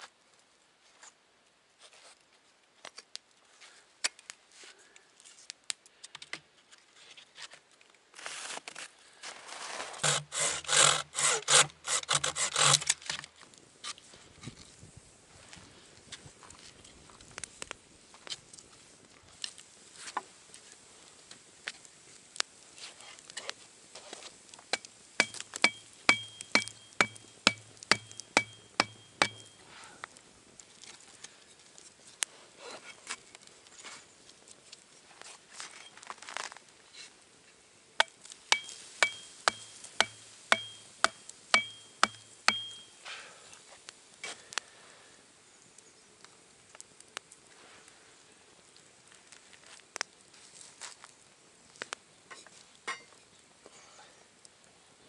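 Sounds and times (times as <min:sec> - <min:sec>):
campfire crackling: 0:02.8 - 0:06.3, 0:07.7 - 0:55.0
hatchet striking wooden stake: 0:10.0 - 0:13.2, 0:24.7 - 0:29.5, 0:38.0 - 0:42.9.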